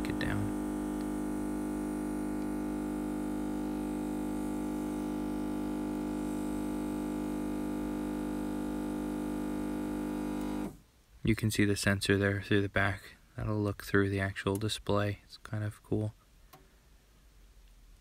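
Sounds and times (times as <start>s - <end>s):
steady hum with overtones: 0.0s - 10.8s.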